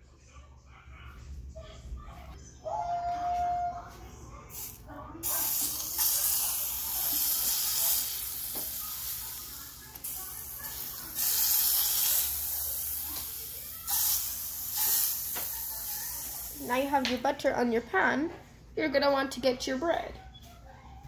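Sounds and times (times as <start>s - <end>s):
butter sizzling in a frying pan: 5.2s - 17.0s.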